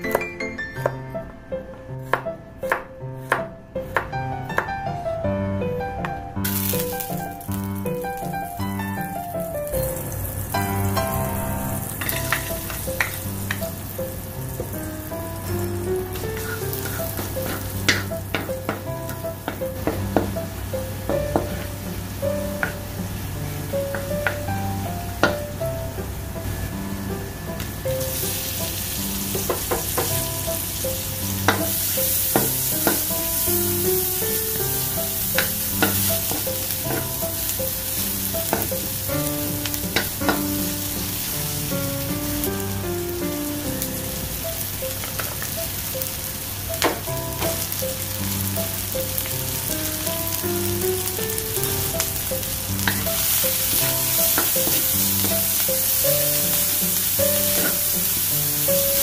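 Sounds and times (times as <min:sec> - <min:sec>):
soft background music: 0:00.0 - 0:59.0
vegetables sizzling in hot oil: 0:06.4 - 0:59.0
wooden spatula scraping a pan: 0:16.2 - 0:18.2.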